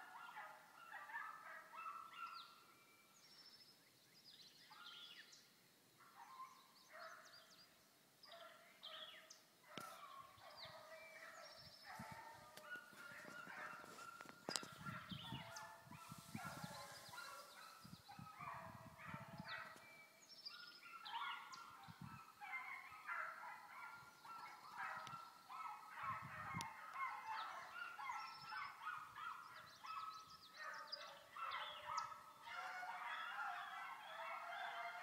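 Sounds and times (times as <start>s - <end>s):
distant dogs baying: 8.3s - 20.0s, 20.6s - 35.0s.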